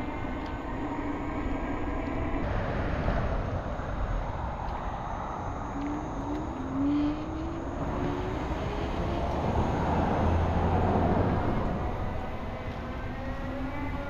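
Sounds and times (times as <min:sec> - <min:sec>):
vehicles giving gliding tones: 0:00.0 - 0:14.0
highway traffic passing: 0:02.2 - 0:14.0
heavy vehicle rumbling past: 0:06.7 - 0:12.3.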